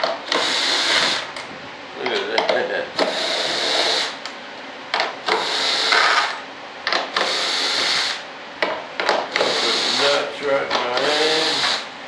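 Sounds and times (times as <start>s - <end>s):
drill clicks: 0.0s - 1.2s, 3.0s - 4.2s, 5.0s - 8.2s, 9.0s - 11.9s
cordless drill running: 0.3s - 1.3s, 3.0s - 4.2s, 5.3s - 6.4s, 7.2s - 8.2s, 9.3s - 10.3s, 10.9s - 11.9s.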